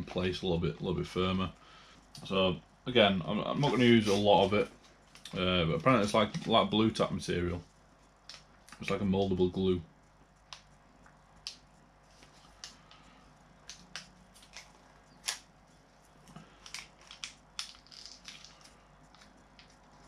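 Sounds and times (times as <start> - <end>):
foil sachet crinkling: 12.2 - 15.5, 16.2 - 20.0.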